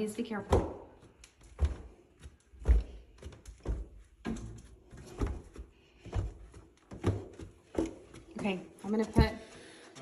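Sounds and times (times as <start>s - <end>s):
flip-flop footsteps on carpeted stairs: 0.4s - 10.0s.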